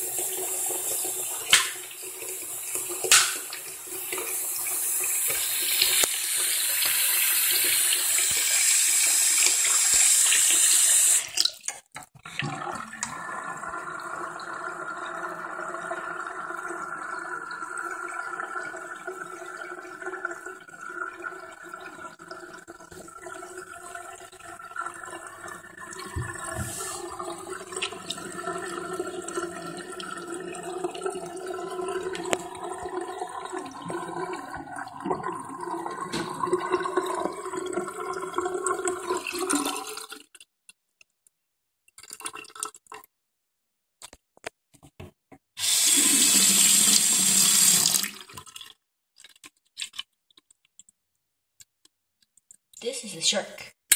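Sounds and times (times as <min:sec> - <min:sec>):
quiet steady water: 0:00.0 - 0:44.2, 0:45.4 - 0:53.5
tap running into sink: 0:01.5 - 0:01.9, 0:03.0 - 0:04.3, 0:26.0 - 0:27.0, 0:36.0 - 0:36.6.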